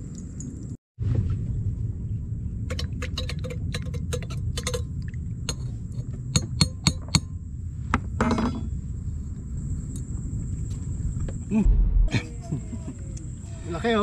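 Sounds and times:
low rumble: 11.6s - 12.4s.

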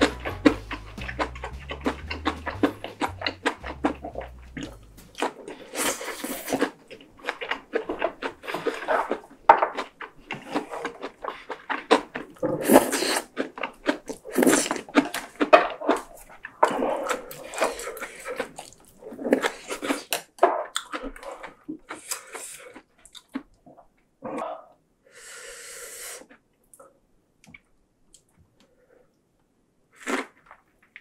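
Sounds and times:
background music with bass: 0.0s - 5.2s
wet chewing mouth clicks: 0.0s - 20.2s.

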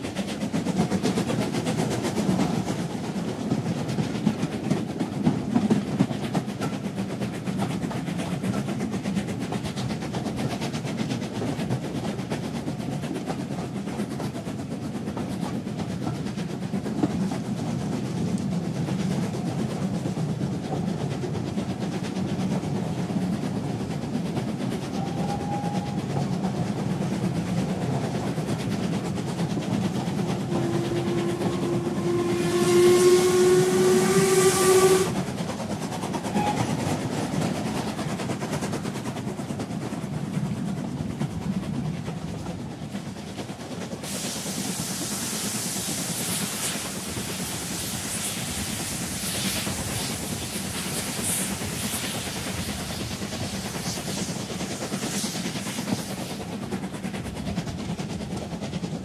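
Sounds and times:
steam whistle blowing: 25.0s - 26.1s, 30.5s - 35.2s, 36.3s - 36.8s.

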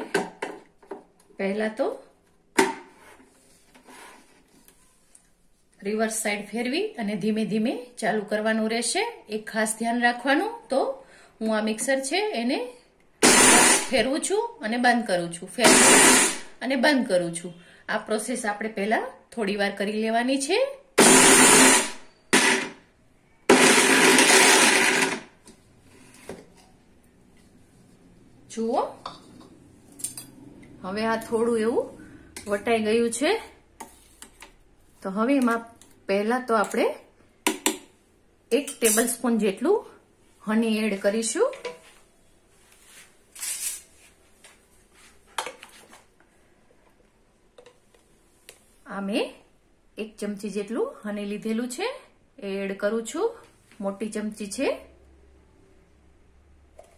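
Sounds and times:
mixer grinder whirring: 13.2s - 14.0s, 15.6s - 16.4s, 21.0s - 22.8s, 23.5s - 25.3s.

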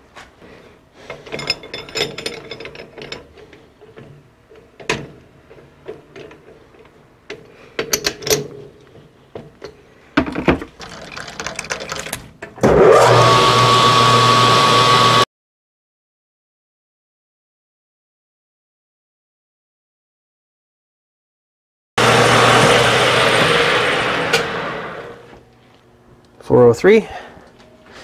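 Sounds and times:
metal clinks and knocks: 1.1s - 4.2s
lathe running with whine: 12.8s - 15.2s, 22.0s - 25.4s.

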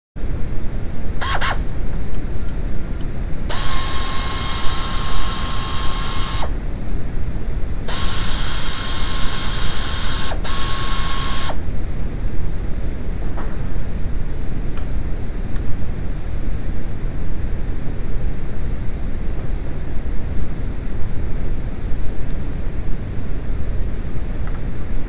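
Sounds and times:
steady rumbling noise: 0.2s - 25.0s
power ratchet motor whine: 1.2s - 1.7s, 3.5s - 6.6s, 7.9s - 11.6s.

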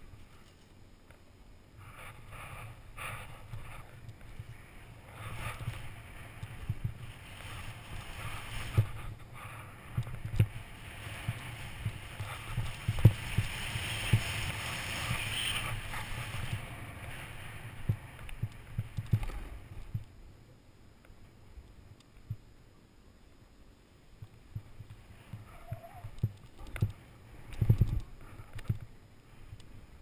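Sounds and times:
snowboard hissing over snow: 1.8s - 3.9s, 4.6s - 18.8s.

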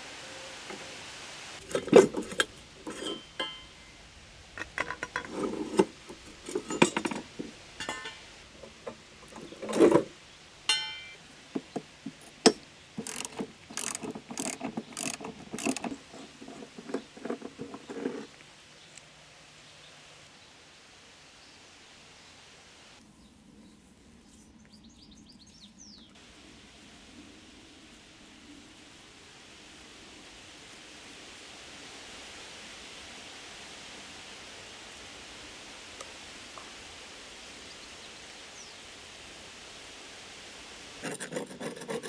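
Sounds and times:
metal tools clinking on wooden bench: 1.6s - 4.0s, 4.6s - 18.3s
socket ratchet clicking: 12.5s - 15.9s.

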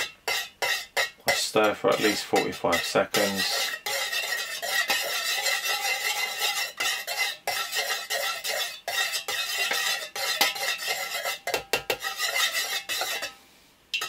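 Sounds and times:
utensil scraping metal pitcher: 0.0s - 13.4s.

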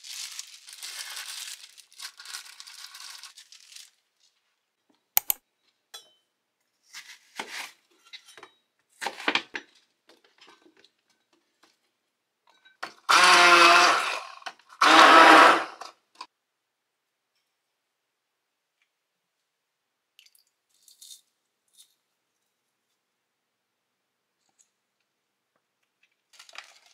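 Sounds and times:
electric kitchen motor pulses: 13.1s - 15.8s.

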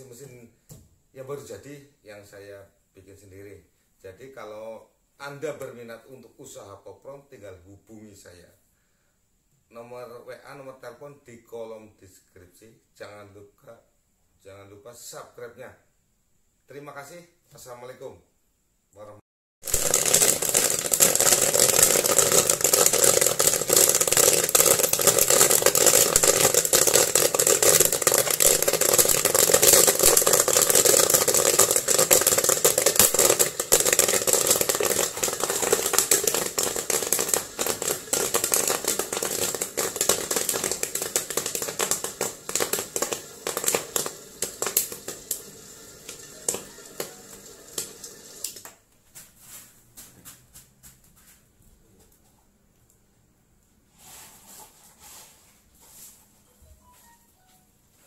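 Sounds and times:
popcorn popping and crackling: 19.6s - 48.8s.

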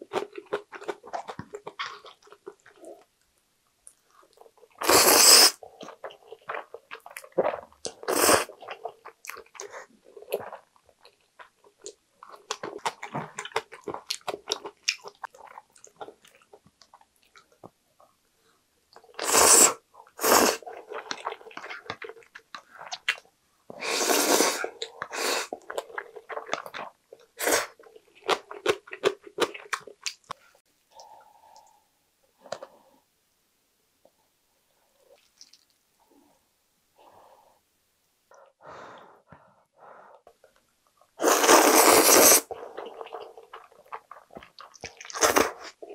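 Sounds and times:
wet chewing and mouth clicks: 0.0s - 3.2s, 5.7s - 17.8s, 20.6s - 23.3s, 24.7s - 31.8s, 35.1s - 35.8s, 40.4s - 45.9s
person slurping noodles: 4.8s - 5.6s, 7.4s - 8.6s, 19.2s - 20.7s, 23.8s - 25.6s, 41.2s - 43.4s.

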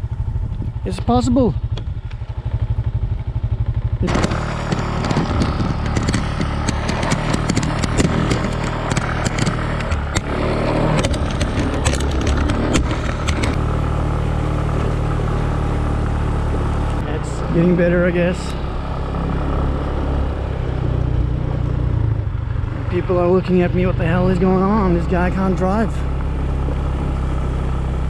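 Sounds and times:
motorbike engine: 0.0s - 28.0s
stones clattering under tyres: 3.8s - 13.6s.

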